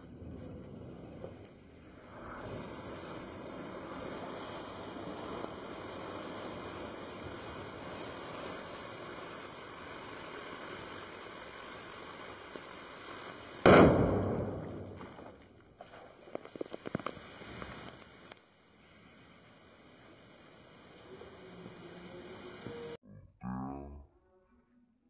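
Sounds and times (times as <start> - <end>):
sodium fizzing in water: 1.3 - 23.0
loud explosion bang: 13.7 - 15.4.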